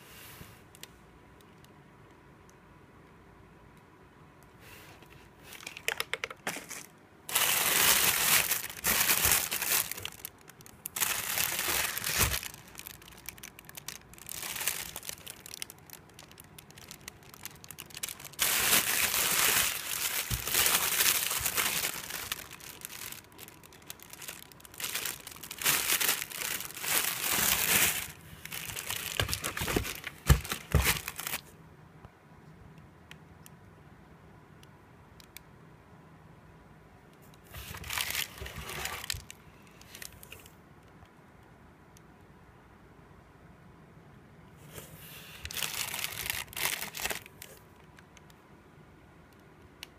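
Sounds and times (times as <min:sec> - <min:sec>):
plastic film and bubble wrap crinkling: 0:05.4 - 0:31.5, 0:37.5 - 0:40.4, 0:45.4 - 0:47.7.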